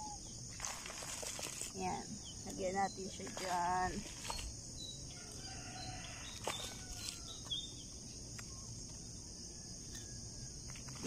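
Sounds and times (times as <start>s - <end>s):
high insect buzz: 0.0s - 11.0s
hand trowel digging into soil: 3.2s - 4.6s.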